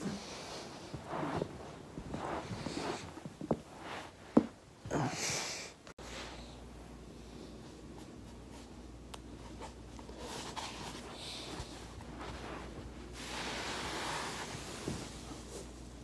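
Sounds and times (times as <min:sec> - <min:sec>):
clothing and foam roller rustling: 0:00.0 - 0:05.0, 0:06.0 - 0:16.0.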